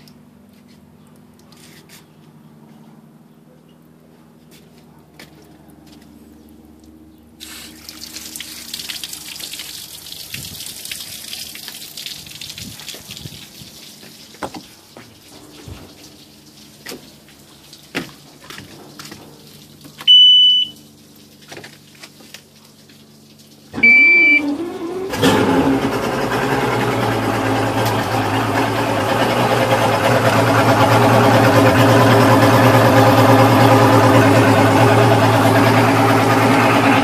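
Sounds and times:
outboard motor idling: 14.4s - 37.0s
short electronic beeps: 20.1s - 20.8s, 23.8s - 24.5s.

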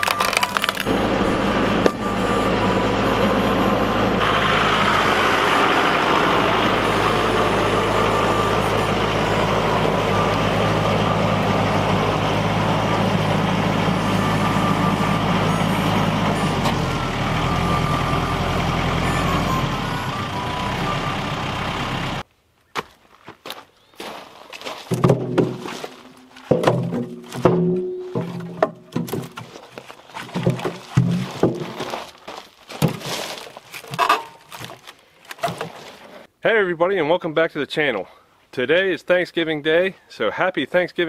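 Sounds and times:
tractor diesel engine running: 0.0s - 22.3s, 24.9s - 34.9s.

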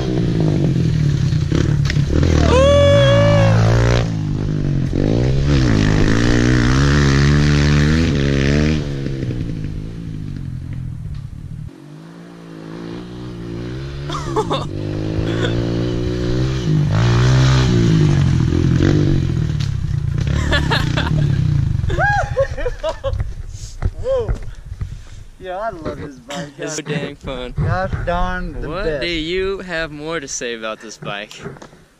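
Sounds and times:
pit bike engine revving: 0.0s - 10.6s, 11.6s - 22.0s.

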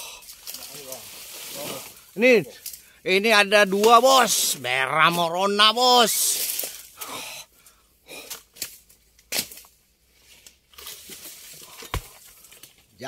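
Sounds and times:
dry fronds rustling and tearing: 0.2s - 2.9s, 3.7s - 7.0s, 8.3s - 13.0s
chisel chopping knocks: 11.8s - 12.2s.

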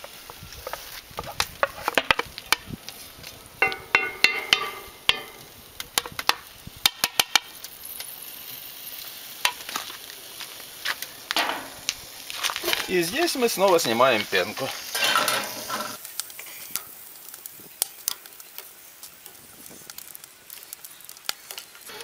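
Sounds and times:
fat sizzling and popping in skillet: 0.0s - 22.0s
spatula scraping and clattering: 3.6s - 5.4s, 11.4s - 11.8s, 14.9s - 16.0s.

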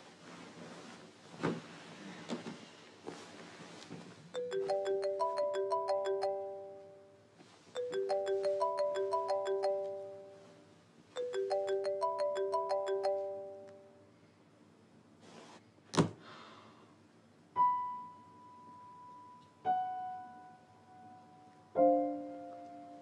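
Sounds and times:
phone ringtone melody: 4.4s - 7.2s, 7.8s - 10.6s, 11.2s - 14.0s.

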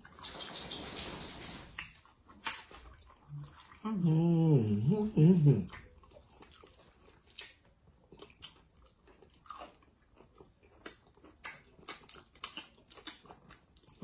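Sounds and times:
small mouth clicks and smacks: 1.8s - 3.8s, 5.7s - 14.0s
mouth chewing and biting: 5.7s - 14.0s.

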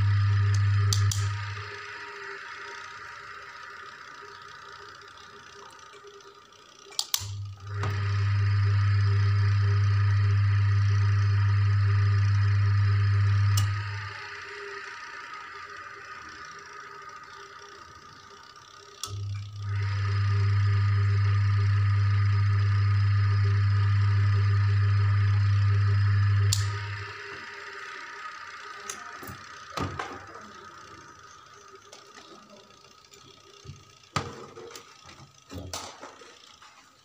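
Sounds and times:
washing machine motor humming: 0.0s - 37.0s
switch click: 0.5s - 1.4s, 6.9s - 7.4s, 26.5s - 26.8s.

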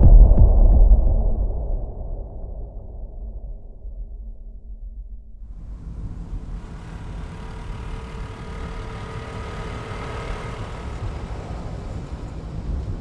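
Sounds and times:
scooter engine rumble: 5.5s - 13.0s.

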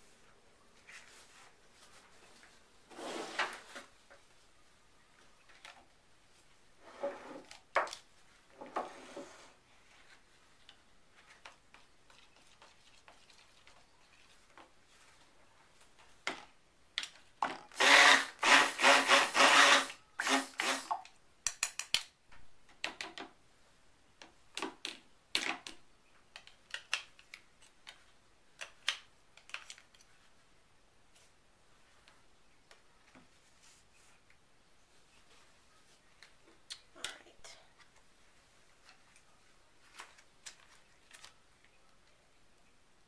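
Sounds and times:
stick blender whirring: 17.7s - 21.0s.

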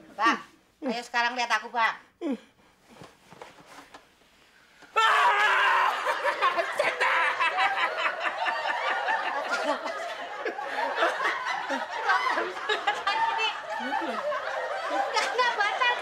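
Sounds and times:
man and woman wailing and sobbing: 5.0s - 7.9s.

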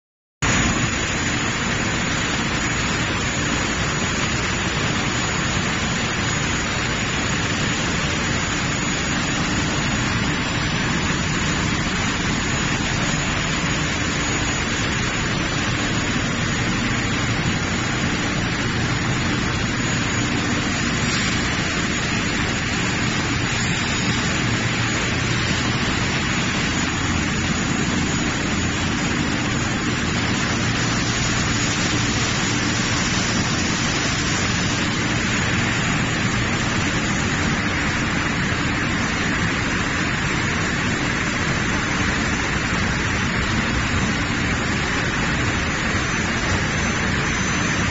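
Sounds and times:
steady machinery noise: 0.4s - 47.9s.

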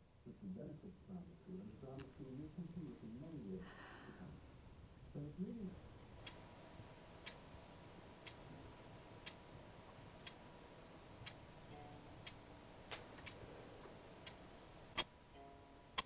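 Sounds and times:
clock ticking: 6.2s - 13.4s, 14.2s - 16.0s
faint held notes: 11.0s - 16.0s.

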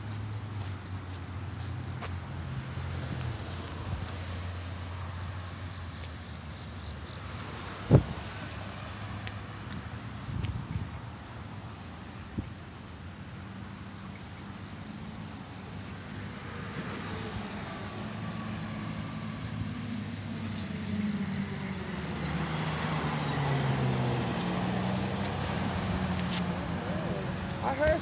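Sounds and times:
road traffic passing: 0.0s - 28.0s
vehicles sweeping by: 0.0s - 28.0s
heavy truck engine passing close: 16.8s - 28.0s.

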